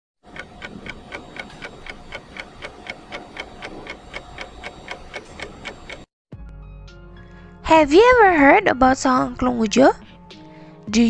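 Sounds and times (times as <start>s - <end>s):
clock-like ticking: 0.2s - 6.1s
faint steady hum: 0.3s - 6.0s.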